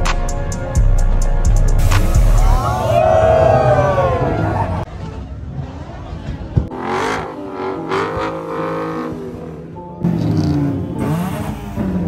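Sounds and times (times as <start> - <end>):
car engine revving: 6.6 - 12.0.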